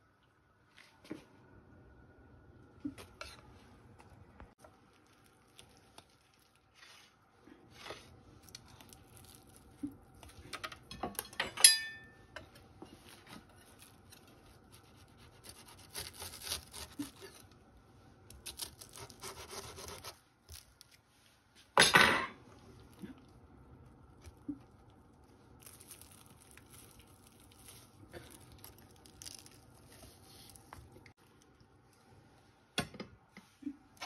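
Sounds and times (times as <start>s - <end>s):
sharp ringing clink: 11.6s - 12.2s
knife sawing through pastry crust: 14.3s - 17.4s, 18.5s - 20.2s.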